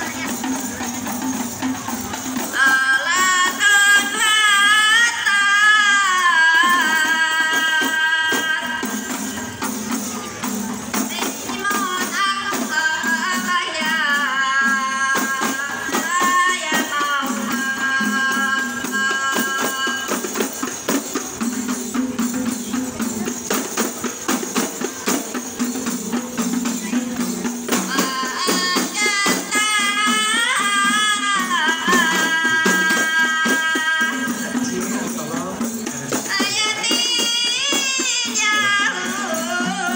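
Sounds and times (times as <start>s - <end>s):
frame drums beaten rapidly: 0.0s - 39.9s
voices singing: 25.0s - 39.9s.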